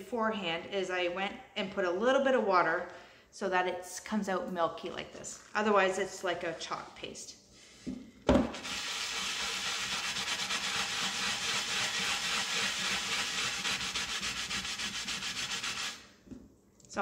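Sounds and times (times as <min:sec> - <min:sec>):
scrub pad scrubbing a pot: 0:08.5 - 0:16.1.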